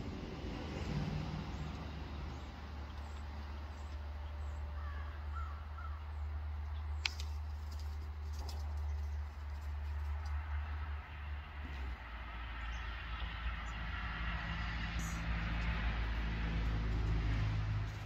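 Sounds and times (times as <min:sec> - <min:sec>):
distant crows cawing: 0:04.4 - 0:06.3.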